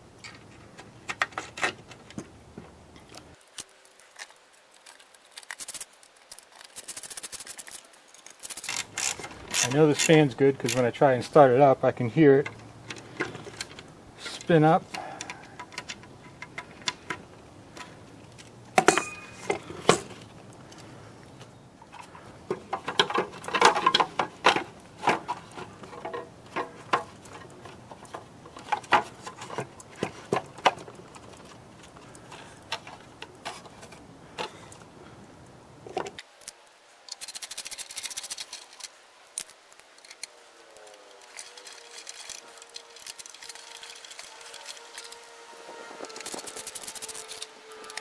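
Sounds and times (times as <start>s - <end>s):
plastic parts clicking and knocking: 14.9s - 20.8s, 21.8s - 34.8s, 35.9s - 45.2s, 46.1s - 48.0s.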